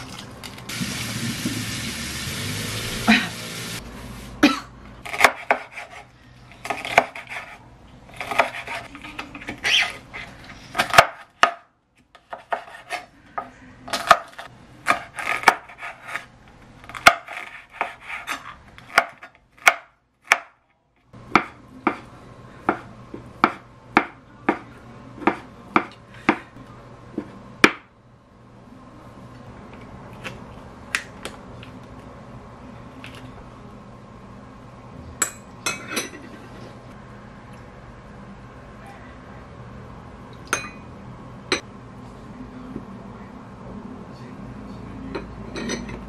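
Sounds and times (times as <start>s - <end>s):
knife chopping on wooden board: 5.1s - 6.0s, 12.3s - 13.0s, 22.7s - 26.4s.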